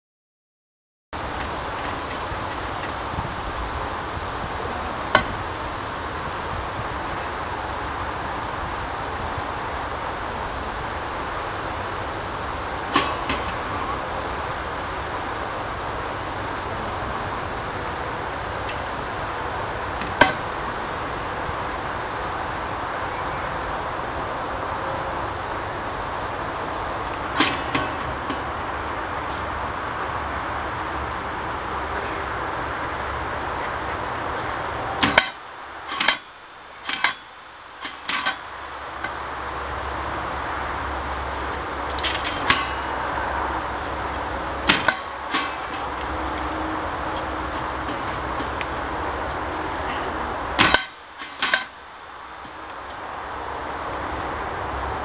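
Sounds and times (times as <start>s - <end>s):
steady background hiss: 1.2s - 55.0s
metal feeder clanking: 12.9s - 14.0s, 27.2s - 28.5s, 35.0s - 39.2s, 41.9s - 43.2s, 44.6s - 48.6s, 49.8s - 51.8s.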